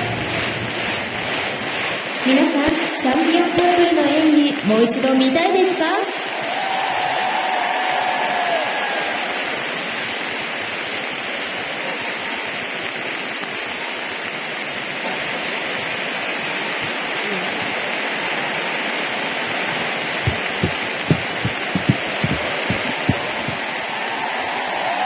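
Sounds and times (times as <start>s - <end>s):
arena crowd applauding: 0.0s - 25.0s
low rhythmic thumps: 20.2s - 23.8s.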